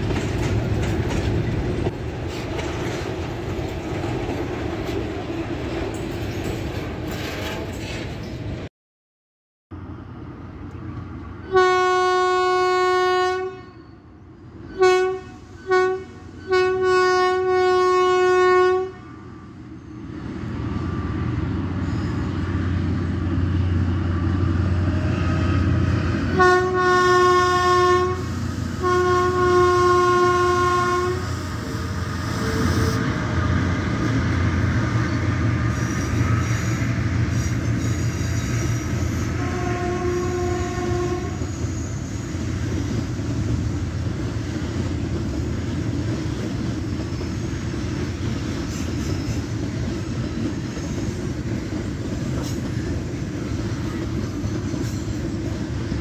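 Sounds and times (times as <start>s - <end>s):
wagons rolling over rails: 0.0s - 8.4s
locomotive horn blasts: 11.5s - 14.0s, 14.7s - 19.0s, 26.3s - 33.1s, 39.0s - 41.6s.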